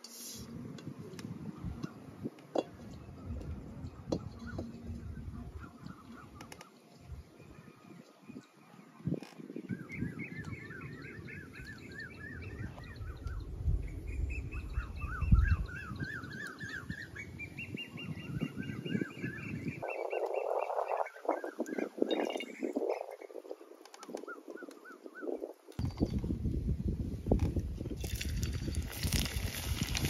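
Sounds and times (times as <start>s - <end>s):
birds chirping: 2.9s - 26.2s.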